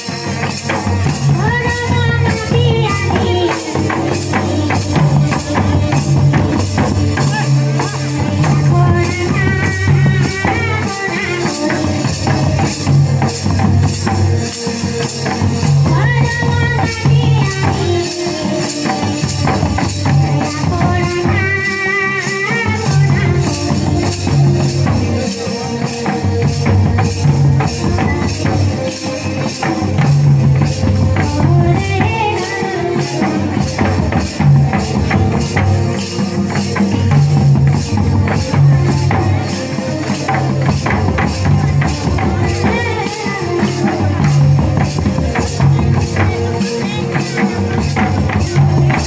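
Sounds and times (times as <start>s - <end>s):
cymbals jingling: 0.0s - 49.0s
hand drums beating: 0.0s - 49.0s
person singing: 0.9s - 13.3s, 15.8s - 49.0s.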